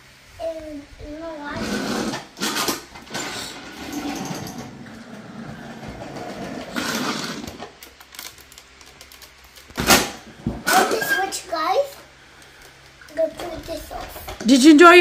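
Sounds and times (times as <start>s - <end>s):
toy vacuum motor whirring: 6.6s - 7.7s.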